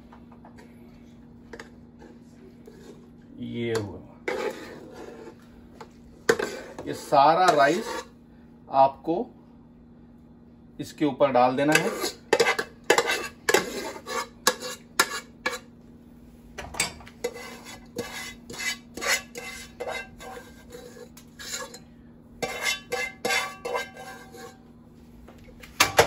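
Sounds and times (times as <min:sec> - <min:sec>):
metal spoon scraping cookware: 0:06.3 - 0:08.1, 0:11.7 - 0:15.7, 0:17.2 - 0:24.6.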